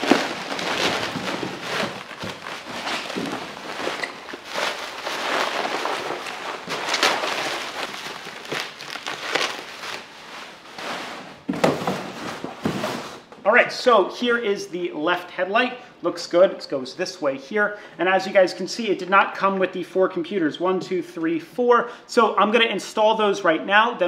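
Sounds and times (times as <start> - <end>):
bubble wrap rustling and crinkling: 0.0 - 13.3.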